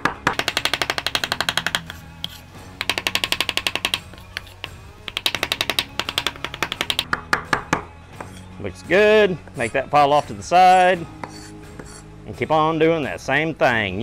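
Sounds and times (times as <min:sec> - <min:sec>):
cleaver chopping on wooden board: 0:00.0 - 0:08.3.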